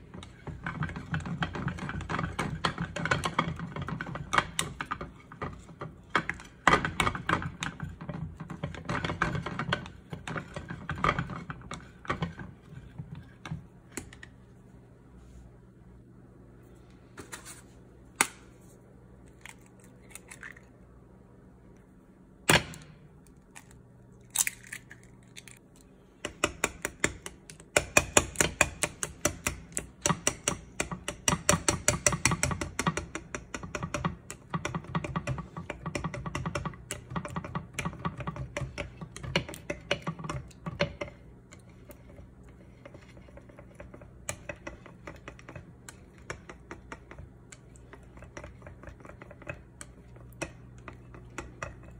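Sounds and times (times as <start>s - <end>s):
eggs cracked against glass bowl: 23.4s - 28.8s.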